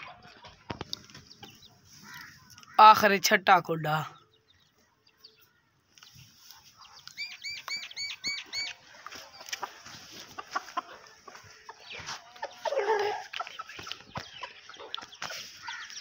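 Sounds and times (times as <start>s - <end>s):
chicks chirping: 0.0s - 2.6s, 4.2s - 16.0s
chickens clucking softly: 6.0s - 16.0s.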